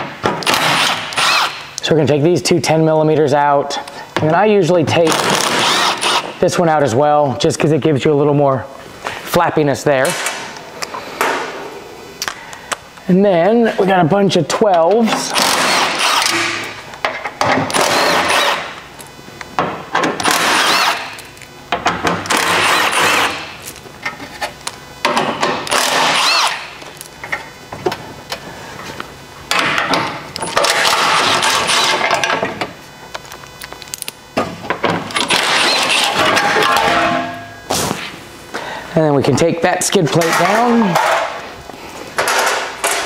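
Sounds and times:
impact wrench hammering bolts: 4.9s - 6.4s, 14.7s - 18.7s, 19.9s - 23.6s, 25.0s - 26.7s, 29.5s - 32.5s, 34.8s - 37.5s.

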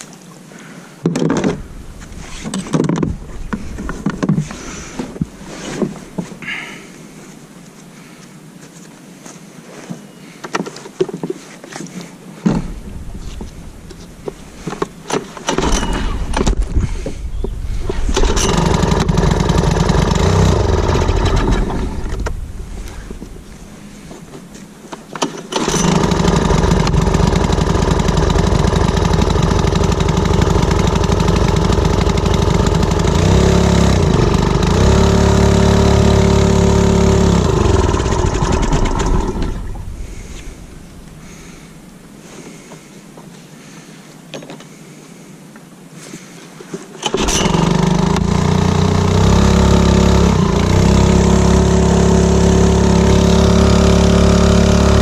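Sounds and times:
outboard motor revving: 15.5s - 24.3s, 25.4s - 41.9s, 47.0s - 55.0s.

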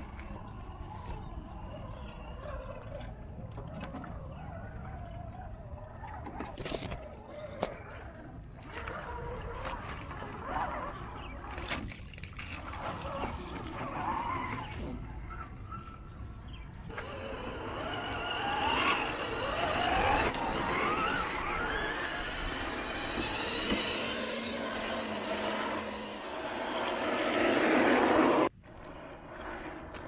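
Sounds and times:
electric motor and gears whining: 16.9s - 30.0s.

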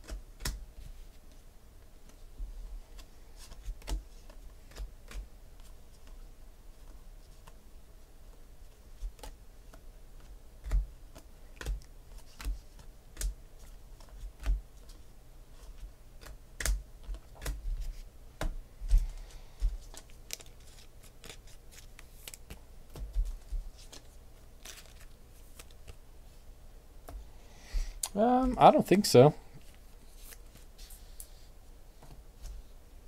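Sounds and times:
trading cards flicked and tapped: 9.0s - 13.4s, 15.7s - 26.0s.

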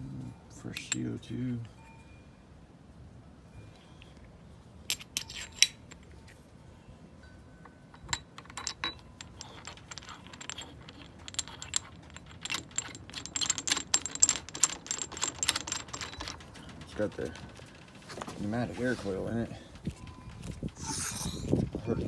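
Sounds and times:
metal clicks and clinks: 0.7s - 1.3s, 4.9s - 6.4s, 7.6s - 18.4s.

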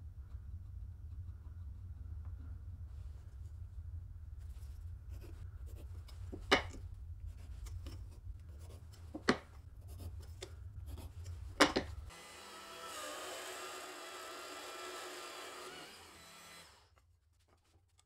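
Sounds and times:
power tool humming: 12.1s - 16.9s
tool scratching into board: 12.6s - 16.8s.

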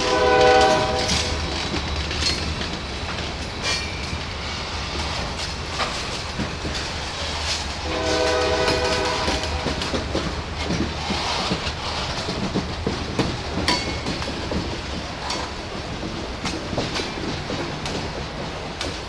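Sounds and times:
locomotive air horn: 0.0s - 1.4s, 7.8s - 9.9s
train wheels clicking on rail joints: 0.0s - 19.0s.

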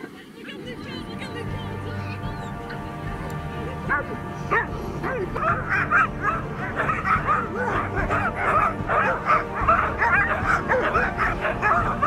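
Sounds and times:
dogs yelping and whining: 4.5s - 12.0s.

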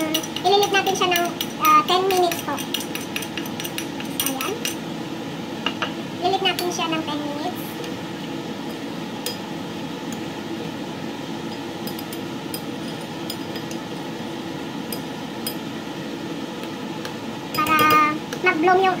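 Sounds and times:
metal spoon stirring in a bowl: 0.0s - 4.8s, 11.5s - 13.9s, 14.9s - 15.7s, 17.0s - 18.5s
spoon clinking against bowl: 0.0s - 4.8s, 11.5s - 13.8s, 14.9s - 15.7s, 17.5s - 18.1s
steady background hum: 0.0s - 19.0s.

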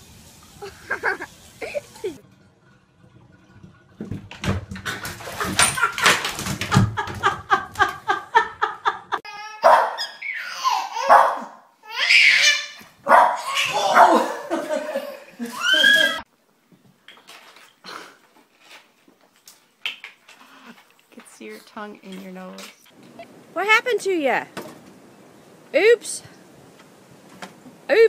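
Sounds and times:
laughter in quick bursts: 0.6s - 2.2s
baby laughing and squealing: 9.2s - 16.2s
dog barking: 9.6s - 10.2s, 11.0s - 11.6s, 13.0s - 14.3s.

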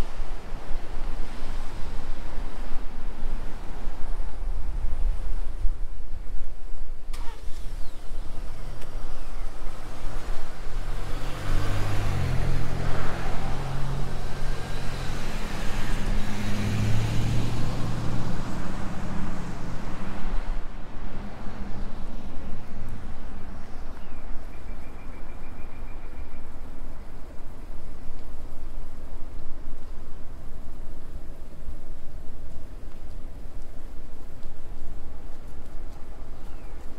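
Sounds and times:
car driving past: 9.9s - 23.1s.

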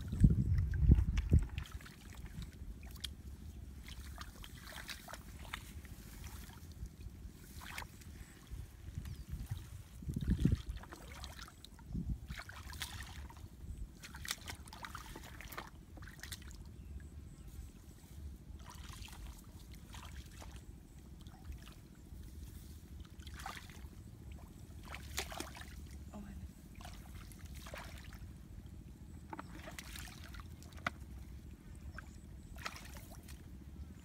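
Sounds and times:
steady low rumble: 0.0s - 34.0s
hands splashing in muddy water: 3.8s - 6.7s, 12.2s - 13.4s, 14.0s - 16.6s, 23.2s - 25.9s, 26.8s - 28.2s, 32.0s - 33.4s.

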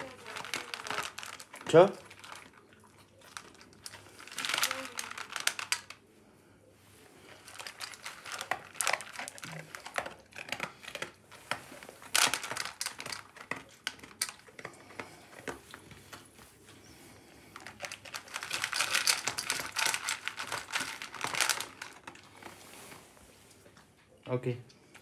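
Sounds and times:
pellets clattering in metal bowl: 0.0s - 6.0s, 7.4s - 14.4s, 17.6s - 22.1s
dog crunching dry kibble: 0.0s - 6.1s, 7.1s - 24.1s.

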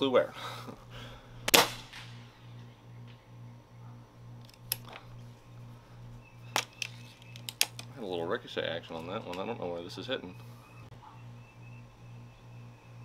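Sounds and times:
air rifle barrel clacking: 6.5s - 7.9s.

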